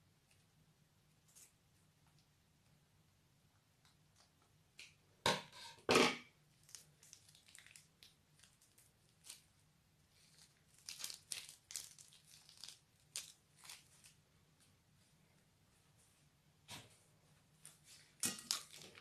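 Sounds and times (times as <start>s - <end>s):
plastic piping bag crinkling: 6.5s - 14.2s, 17.7s - 19.0s.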